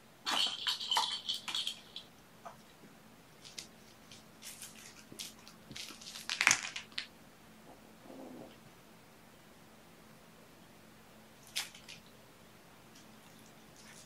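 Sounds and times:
plastic toys clicking and rattling: 0.3 - 2.1.

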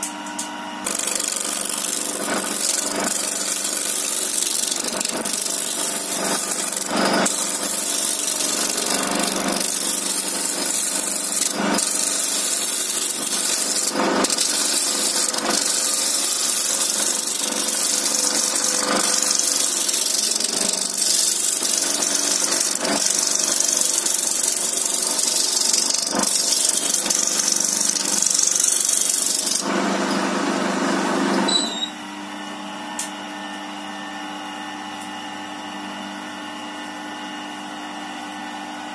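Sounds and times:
lathe motor hum: 0.8 - 31.5
lathe tool scraping wood: 0.8 - 31.8.

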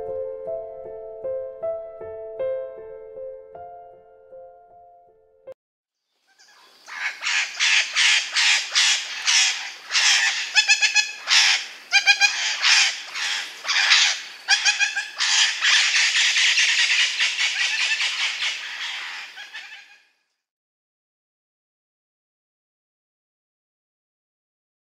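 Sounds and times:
parrot squawking: 6.4 - 20.0.

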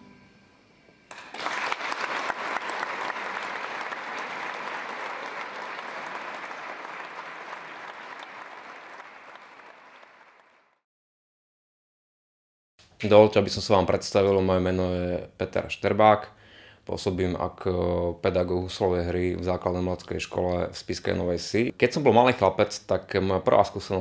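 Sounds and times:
audience applauding: 1.1 - 10.8.

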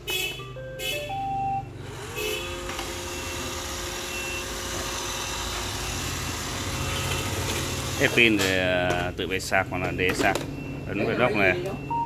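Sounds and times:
robot vacuum start-up beeps: 0.6 - 1.7, 2.4 - 8.4, 9.9 - 12.0
robot vacuum motors whining: 1.8 - 9.1.

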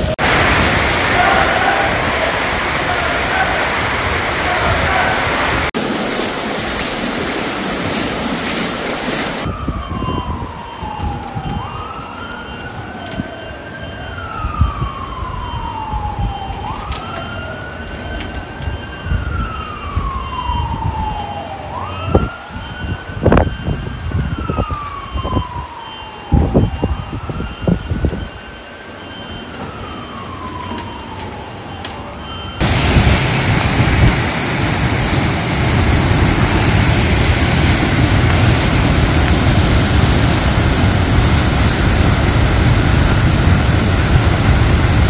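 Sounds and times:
floodwater rushing: 0.0 - 9.5, 32.6 - 45.0
wind buffeting microphone: 0.0 - 28.5, 32.6 - 45.0
distant siren wailing: 0.0 - 45.0.

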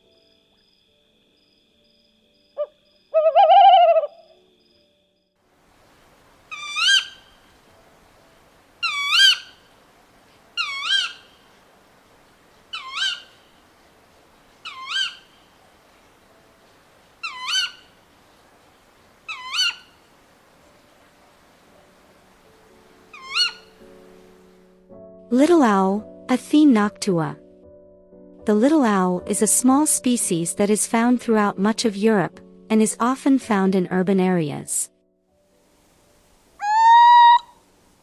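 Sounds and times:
owl hooting: 2.6 - 4.4, 6.5 - 7.4, 8.8 - 9.6, 10.6 - 11.5, 12.7 - 13.5, 14.6 - 15.5, 17.2 - 18.0, 19.3 - 20.0, 23.1 - 23.8, 36.6 - 37.7
owl two-part call: 2.6 - 4.4, 6.5 - 7.3, 8.8 - 9.6, 10.6 - 11.4, 12.7 - 13.4, 14.6 - 15.4, 17.2 - 17.9, 19.3 - 19.9, 23.1 - 23.7, 36.6 - 37.6.

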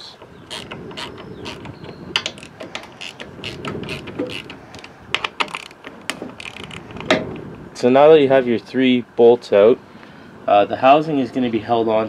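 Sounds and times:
small metallic ticks: 0.0 - 7.4
ratchet wrench clicking: 0.5 - 7.2.

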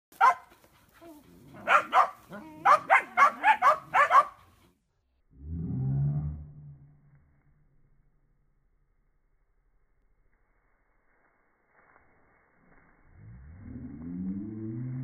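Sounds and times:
puppies barking sharply: 0.2 - 0.5, 1.6 - 4.4.

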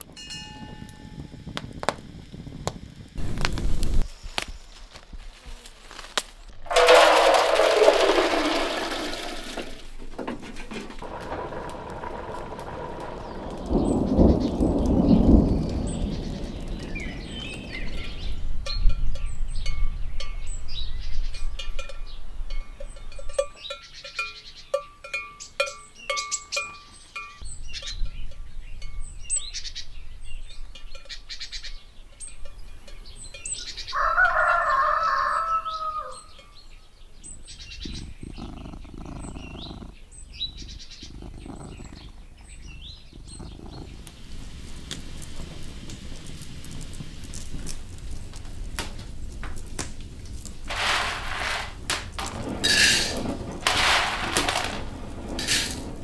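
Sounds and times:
livestock bells clinking: 0.1 - 1.4, 17.8 - 29.3, 30.5 - 34.1
birds chirping: 6.4 - 56.0
farm animal call: 33.6 - 36.5, 37.5 - 44.2.

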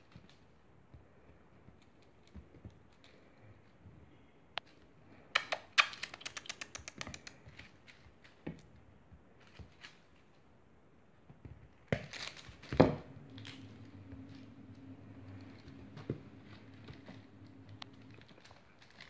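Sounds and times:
kitten claws skittering on wood floor: 5.4 - 8.7, 11.8 - 19.0.

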